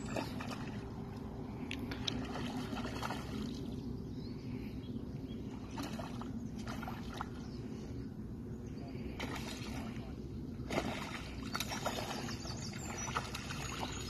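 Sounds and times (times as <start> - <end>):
fish splashing at water surface: 1.9 - 3.6, 10.6 - 14.0.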